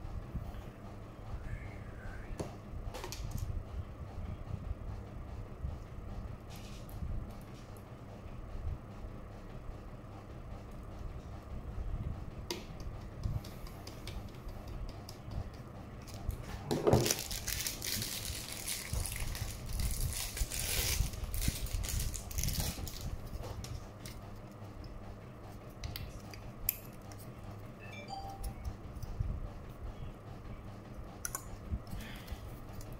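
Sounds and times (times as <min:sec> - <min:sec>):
plastic packaging crinkling: 0:17.0 - 0:23.1.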